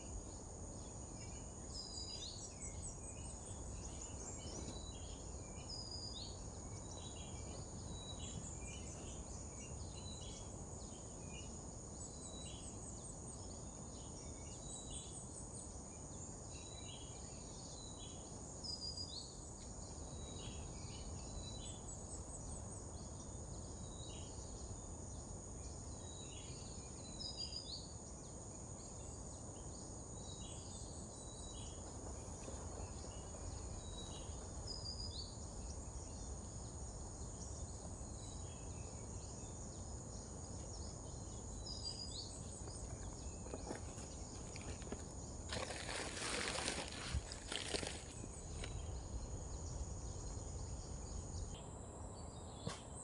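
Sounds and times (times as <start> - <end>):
insects droning: 0.0 - 53.0.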